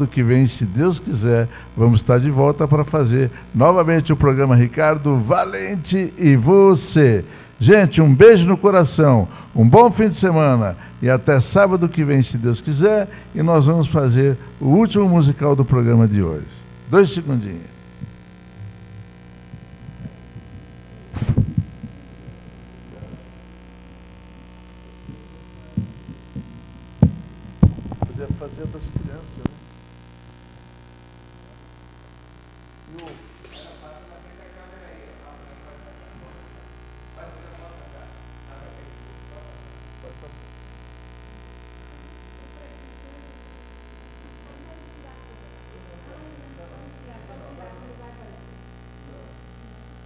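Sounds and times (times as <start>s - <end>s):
electrical hum: 0.0s - 50.0s
dull low thumps: 18.0s - 23.2s, 25.1s - 29.2s.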